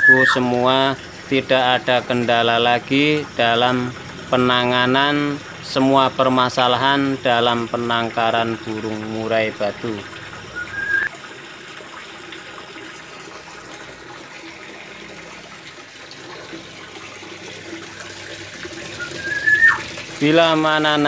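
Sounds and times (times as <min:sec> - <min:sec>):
short rising whistle: 0:10.5 - 0:11.1, 0:19.0 - 0:19.8.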